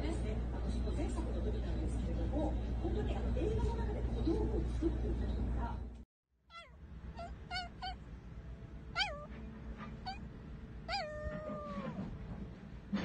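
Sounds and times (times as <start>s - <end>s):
small animal high-pitched cries: 6.5s - 8.0s, 8.9s - 9.3s, 9.9s - 10.3s, 10.9s - 12.0s.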